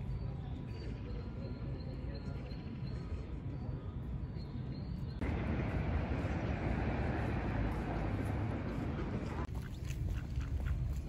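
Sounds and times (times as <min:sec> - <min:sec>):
steady low rumble: 0:05.2 - 0:11.0.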